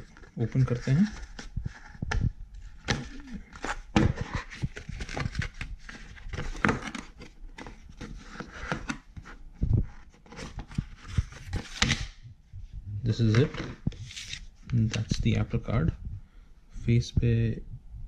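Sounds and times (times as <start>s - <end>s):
cardboard rustling and scraping: 0.0s - 12.2s, 13.1s - 15.3s.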